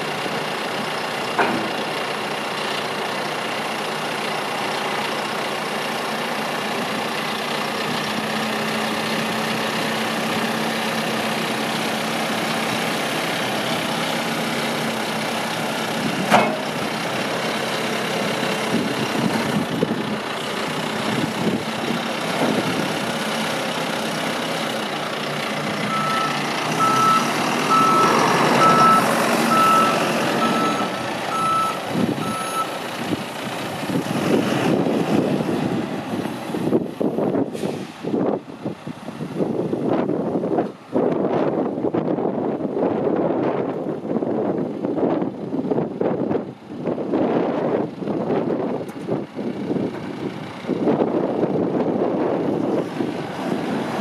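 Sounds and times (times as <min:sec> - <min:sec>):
diesel engine running: 0:00.0 - 0:54.0
sharp metal clank: 0:16.3 - 0:16.7
backup alarm beeping: 0:25.9 - 0:32.7.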